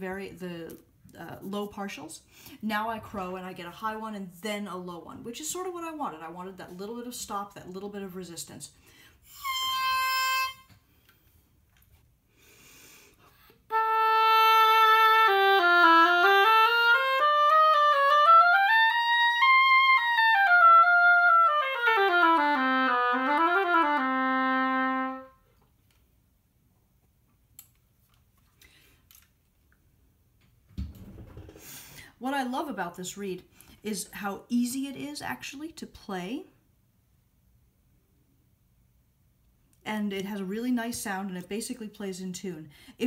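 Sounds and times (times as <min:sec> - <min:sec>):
oboe playing slurred phrase: 0:09.3 - 0:10.7, 0:13.7 - 0:25.3.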